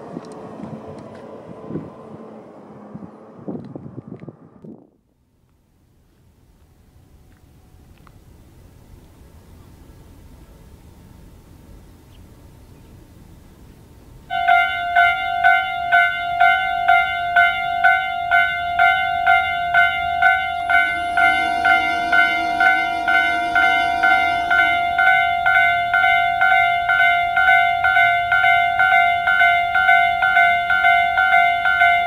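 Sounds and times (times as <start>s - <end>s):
level crossing electronic bell: 14.3s - 32.0s.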